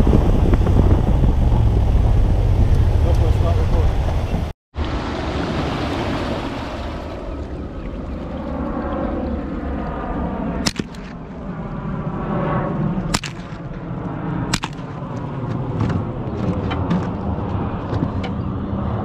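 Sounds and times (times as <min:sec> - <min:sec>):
boat motor running: 0:00.0 - 0:10.2
rifle shots: 0:10.6 - 0:11.5, 0:13.1 - 0:13.9, 0:14.5 - 0:15.1.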